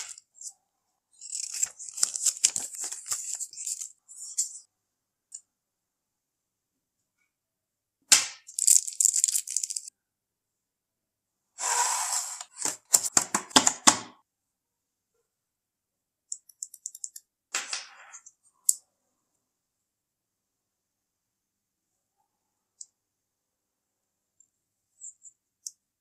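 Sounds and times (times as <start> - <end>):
packaging rustling: 1.2 - 3.9.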